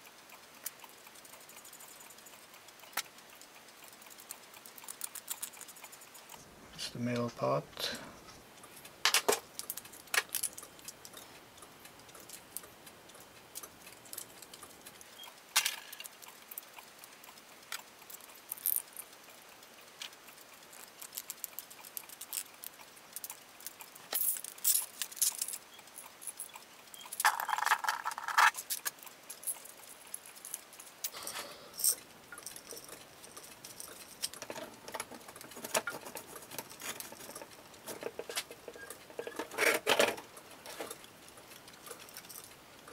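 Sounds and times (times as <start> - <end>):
plastic parts clicking and knocking: 9.0 - 11.0, 26.2 - 29.6, 31.9 - 42.5.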